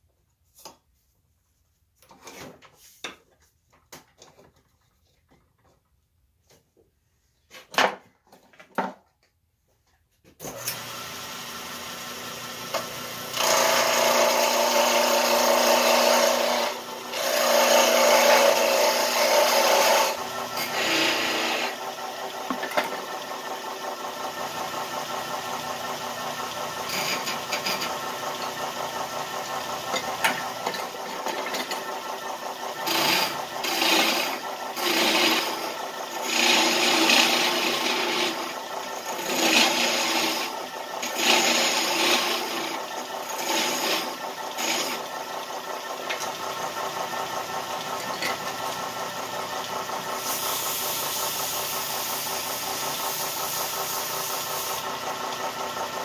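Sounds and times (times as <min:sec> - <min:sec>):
lathe motor and belt hum: 0:10.5 - 0:56.0
turning tool scraping wood: 0:12.7 - 0:56.0.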